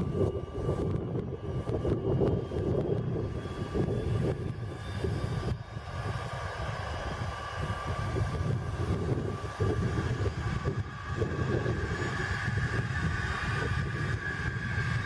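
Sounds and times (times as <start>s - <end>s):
jet engines starting: 0.0s - 15.0s.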